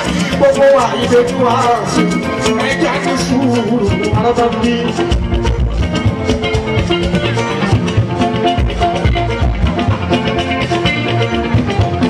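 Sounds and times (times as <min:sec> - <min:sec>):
person singing: 0:00.0 - 0:05.6
band playing: 0:00.0 - 0:12.0
drums and percussion: 0:00.0 - 0:12.0.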